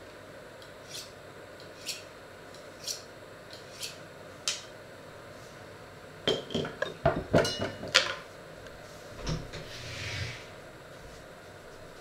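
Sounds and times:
knife scraping on sharpening steel: 0.8 - 1.1, 1.8 - 2.1, 2.8 - 4.0.

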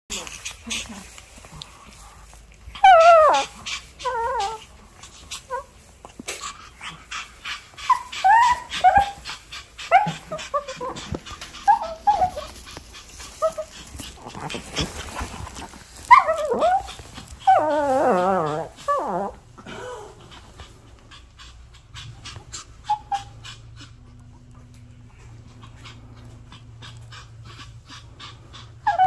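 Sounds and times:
dog whining: 2.7 - 4.7, 5.3 - 5.9, 6.8 - 20.4, 22.0 - 29.0
puppy whimpering and yipping: 2.8 - 4.7, 5.4 - 5.8, 7.8 - 20.0, 22.3 - 24.5, 25.4 - 29.0.

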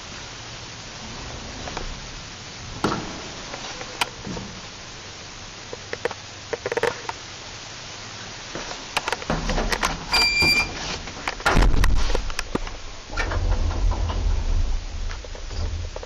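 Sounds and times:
lift low rumble: 0.0 - 5.6, 11.4 - 16.0
lift button beep: 10.1 - 10.8.

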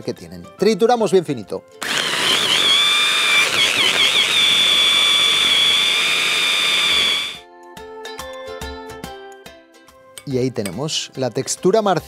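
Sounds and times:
hand blender whining: 1.8 - 7.4.

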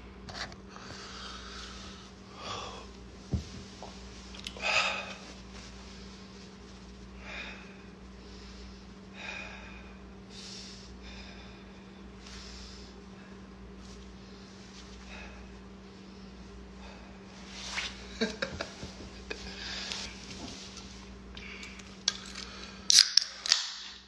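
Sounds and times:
steady low hum: 0.0 - 23.4
person breathing: 0.7 - 3.5, 4.5 - 6.2, 7.1 - 17.9, 19.3 - 20.2.

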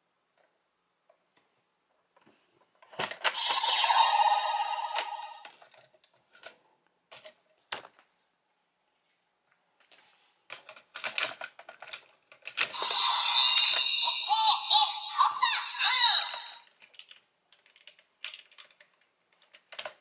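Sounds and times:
toy electronic sound effect: 3.3 - 5.6, 12.7 - 16.7.

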